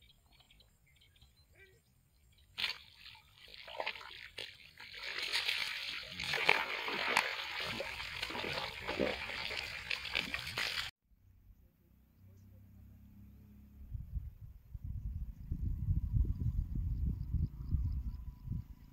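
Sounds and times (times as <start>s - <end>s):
water sloshing from wading: 2.5s - 10.9s.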